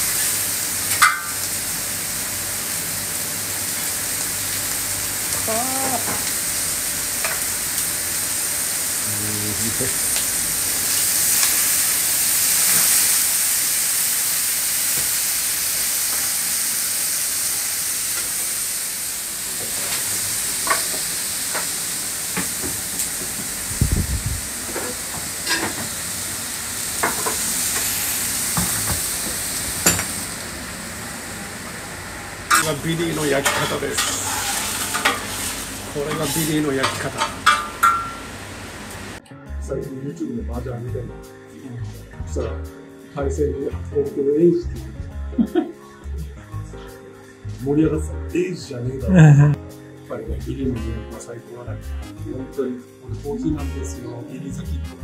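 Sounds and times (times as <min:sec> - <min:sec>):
steaks sizzling on hot plates: 0:00.0 - 0:39.2
metal plates and utensils clinking: 0:00.9 - 0:01.4, 0:24.8 - 0:25.9, 0:32.5 - 0:38.3.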